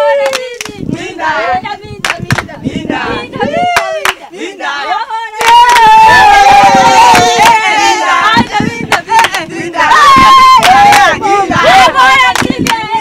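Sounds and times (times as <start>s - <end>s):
group singing and chanting: 0.0s - 13.0s
hand claps: 0.2s - 0.8s, 2.0s - 2.5s, 3.7s - 4.2s, 5.4s - 5.9s, 8.9s - 9.5s, 10.6s - 11.1s, 12.3s - 12.8s.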